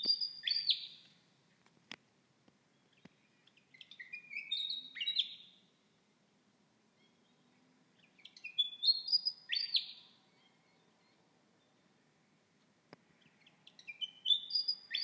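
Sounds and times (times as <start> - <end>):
bird singing whistled notes: 0.0 - 1.0, 2.9 - 5.6, 7.0 - 11.2, 13.2 - 15.0.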